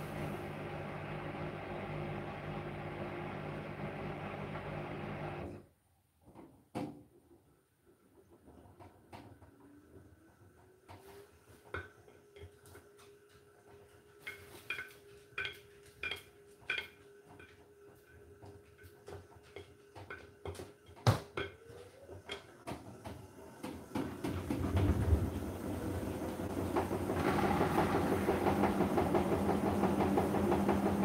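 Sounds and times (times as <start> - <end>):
washing machine motor whine: 0.0 - 5.6, 21.5 - 31.0
drum spinning rushing noise: 24.5 - 31.0.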